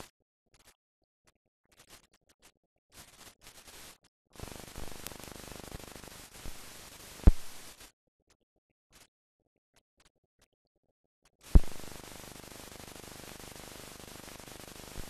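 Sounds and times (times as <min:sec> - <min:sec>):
film crackles: 0:02.9 - 0:07.9, 0:11.4 - 0:15.0
steady hiss with clicks: 0:02.9 - 0:07.9, 0:11.4 - 0:15.0
loud pop: 0:07.2 - 0:07.6, 0:11.5 - 0:11.9.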